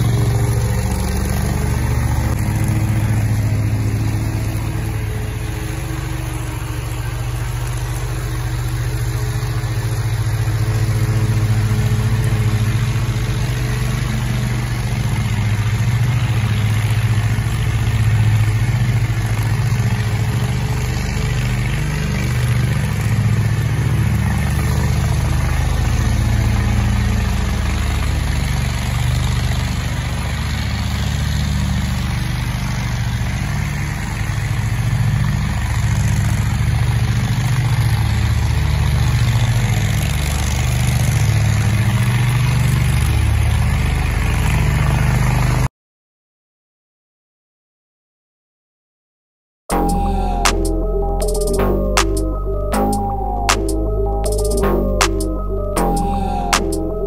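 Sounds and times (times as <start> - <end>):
lawn mower engine running: 0.0 - 45.6.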